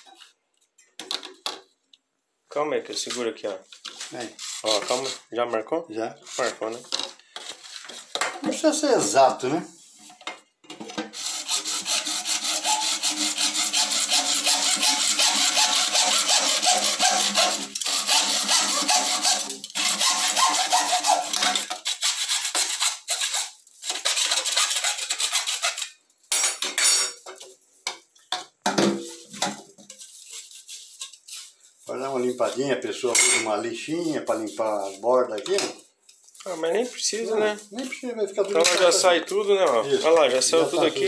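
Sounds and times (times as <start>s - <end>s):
hacksaw cutting plastic pipe: 11.0s - 26.0s.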